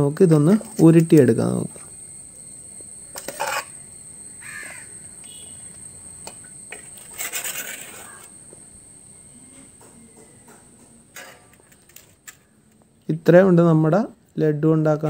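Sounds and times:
spoon scraping metal plate: 3.1s - 3.8s, 6.7s - 8.3s.

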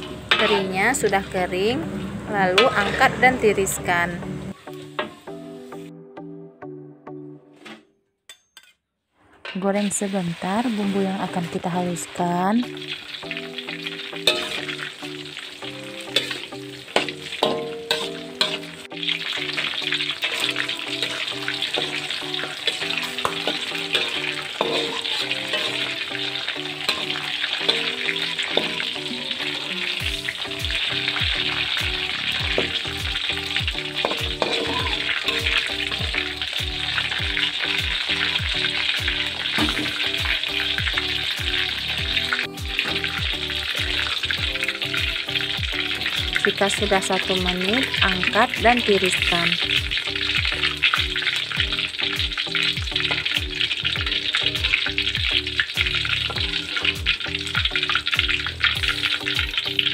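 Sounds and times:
hot oil sizzling in a wok: 0.0s - 3.8s, 4.5s - 5.9s, 9.6s - 59.9s.

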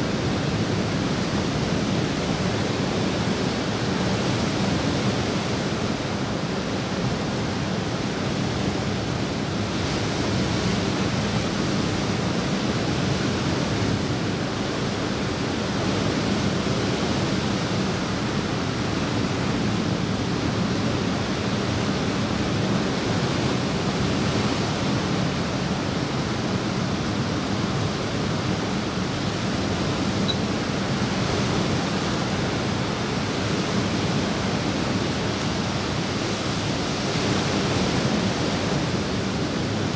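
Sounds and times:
water rushing: 17.4s - 39.9s.

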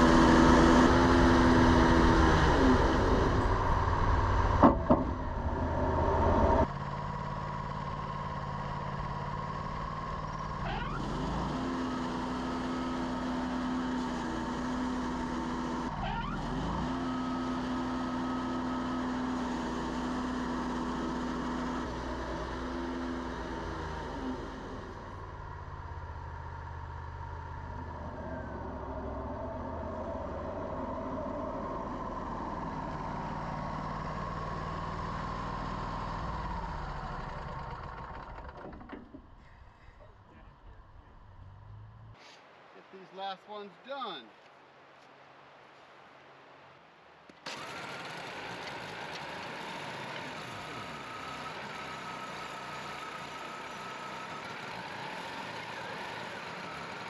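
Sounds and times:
bandsaw mill cutting log: 0.0s - 6.8s, 8.1s - 25.2s, 32.6s - 39.3s, 47.5s - 57.0s.

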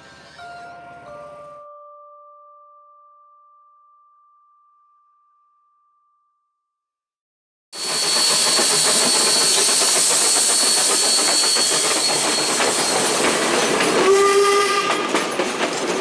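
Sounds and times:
steam hissing: 7.8s - 14.1s
wheels clicking on rails: 7.8s - 16.0s
steam whistle blast: 14.0s - 15.0s.

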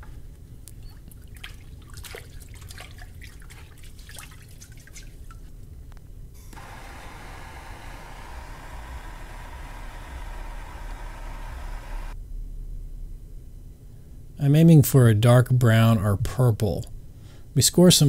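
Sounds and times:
water dripping and splashing: 0.9s - 5.6s
gas torch hissing: 6.4s - 12.2s.

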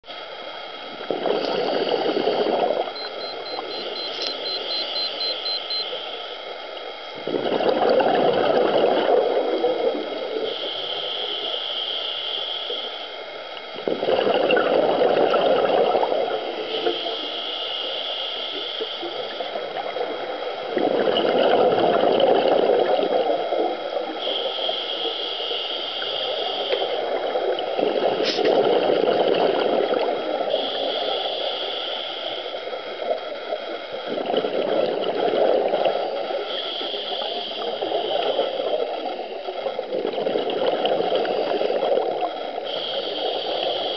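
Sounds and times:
gurgling exhaled bubbles: 1.0s - 5.1s, 7.2s - 10.7s, 13.8s - 17.2s, 19.0s - 24.8s, 26.0s - 31.3s, 32.6s - 43.9s
regulator inhale hiss: 1.3s - 6.4s, 10.3s - 13.2s, 16.6s - 19.5s, 24.1s - 27.2s, 28.2s - 28.6s, 30.4s - 33.1s, 36.0s - 39.5s, 42.5s - 43.9s.

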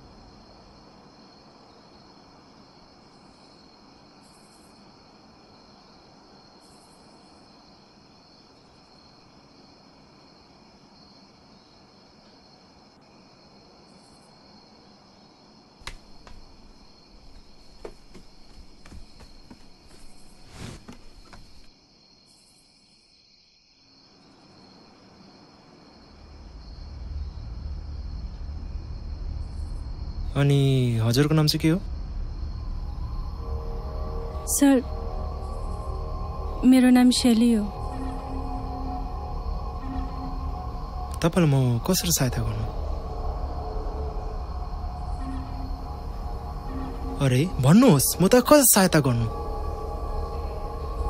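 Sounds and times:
cricket chirps: 0.0s - 51.0s
low rumble: 26.2s - 51.0s
high steady drone: 27.0s - 51.0s.

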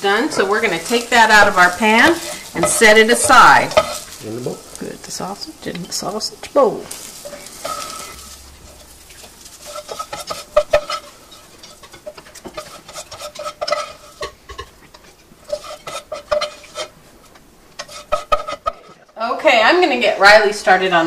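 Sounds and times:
plastic spatula scraping pan: 9.6s - 17.0s, 17.8s - 19.1s.

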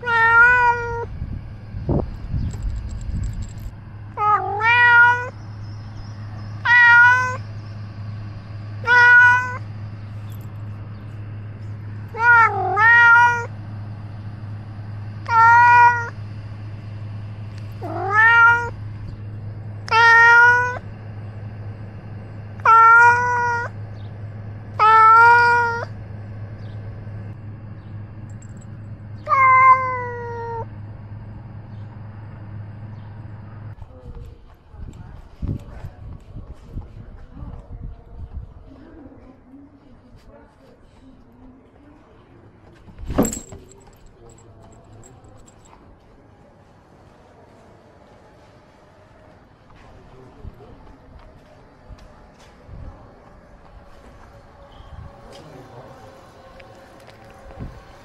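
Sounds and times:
cat meowing close up: 0.0s - 1.1s, 4.2s - 5.4s, 6.6s - 7.4s, 8.8s - 9.6s, 12.1s - 13.5s, 15.2s - 16.2s, 17.8s - 18.8s, 19.9s - 20.8s, 22.6s - 23.7s, 24.8s - 25.9s, 29.3s - 30.7s
steady low hum: 0.6s - 40.4s.

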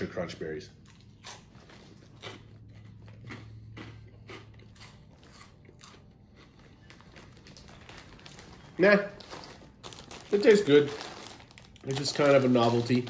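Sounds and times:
person chewing crunchy food: 0.8s - 8.1s.

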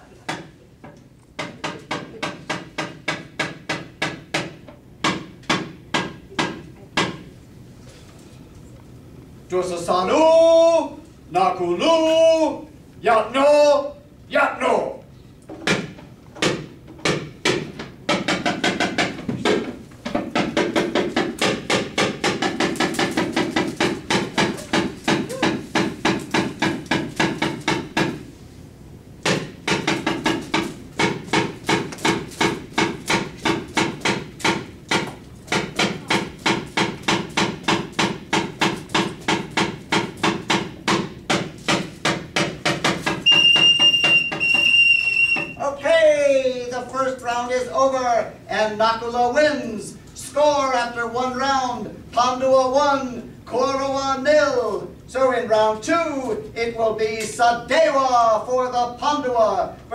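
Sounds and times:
rapid percussion knocking: 17.0s - 28.2s, 29.3s - 45.6s.

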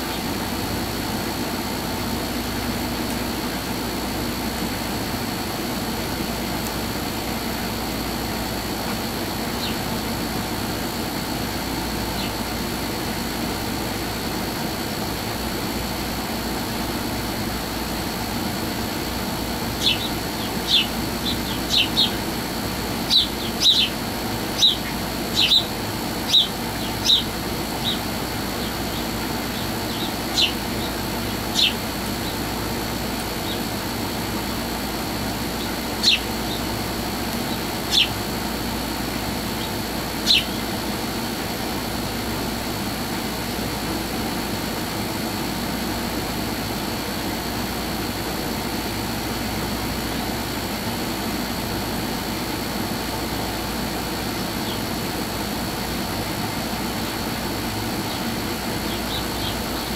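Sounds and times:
steady mechanical hum: 0.0s - 59.9s
high bird chirps: 19.8s - 22.2s, 23.1s - 32.4s, 35.6s - 36.7s, 37.4s - 38.2s, 39.6s - 40.7s.

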